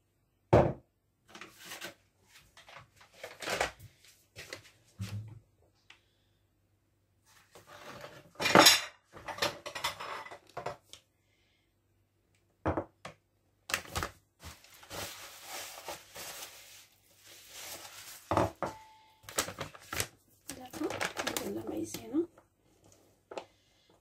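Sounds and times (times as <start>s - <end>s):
dishes and cutlery clattering: 8.4s - 10.8s
soft scraping and rustling: 14.4s - 18.3s.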